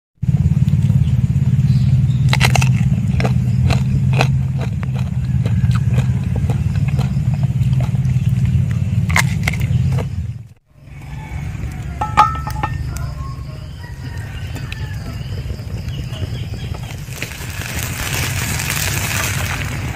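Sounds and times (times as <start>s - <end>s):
steady low rumble: 0.2s - 19.9s
clicks and crackles handling food: 2.2s - 10.6s, 13.9s - 19.9s.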